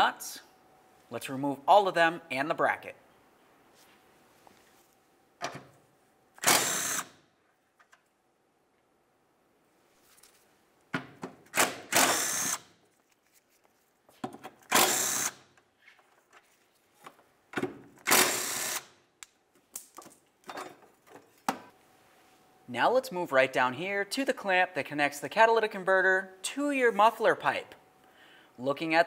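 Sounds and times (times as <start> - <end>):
cordless power tool spinning: 6.4 - 7.1, 11.8 - 12.6, 14.7 - 15.4, 18.1 - 18.9.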